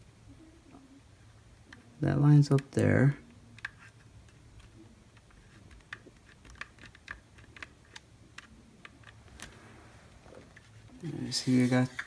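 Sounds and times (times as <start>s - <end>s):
faint plastic clicks and taps: 2.5s - 9.6s.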